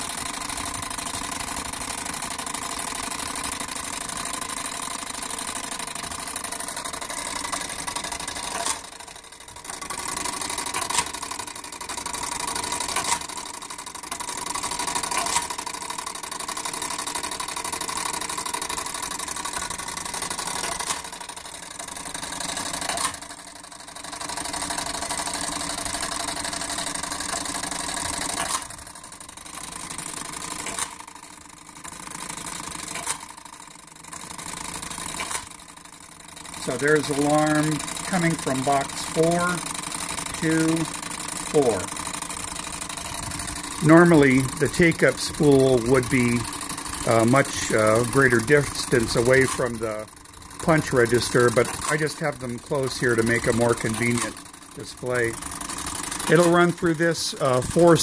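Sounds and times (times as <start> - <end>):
sharp clacks of punch register: 0.2 - 23.4, 24.0 - 28.8, 29.4 - 31.1, 31.8 - 33.5, 34.1 - 35.7.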